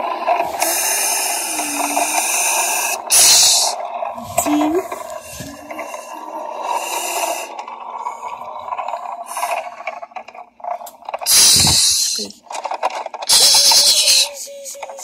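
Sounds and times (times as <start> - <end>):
mouth-made engine drone: 0.0 - 12.3
imitated air-brake hiss: 0.6 - 3.8, 11.2 - 12.3.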